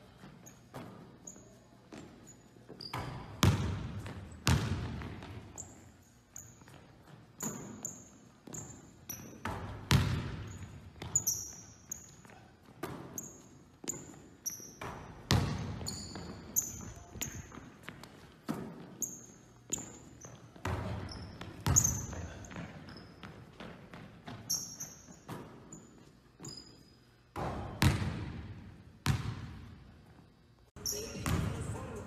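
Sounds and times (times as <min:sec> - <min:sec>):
sneaker squeaks: 0:00.0 - 0:28.0, 0:30.8 - 0:31.7
basketball bouncing on hardwood floor: 0:02.9 - 0:05.5, 0:08.4 - 0:11.6, 0:14.8 - 0:18.8, 0:19.7 - 0:24.5, 0:27.4 - 0:29.6.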